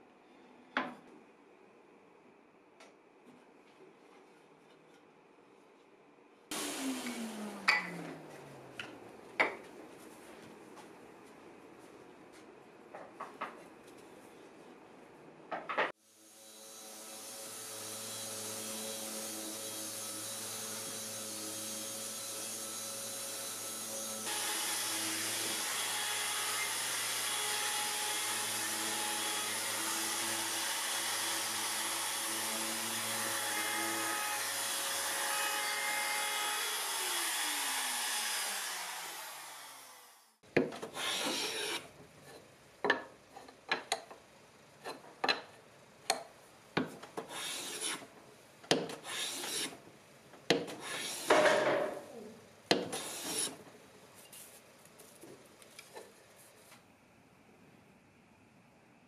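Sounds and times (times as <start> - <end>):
router running and winding down: 6.5 - 8.0, 24.3 - 40.3
hand plane strokes on wood: 40.9 - 41.8, 47.2 - 48.0, 48.9 - 49.8, 50.7 - 51.4, 52.7 - 53.6.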